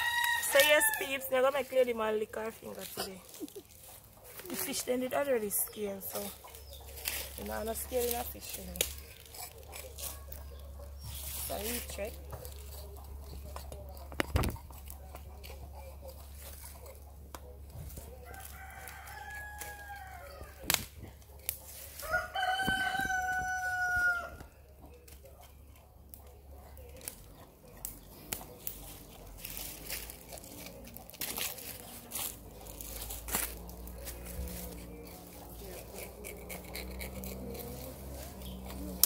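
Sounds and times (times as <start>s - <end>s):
rooster crowing: 0.0s - 1.3s, 18.2s - 20.5s, 22.0s - 24.5s.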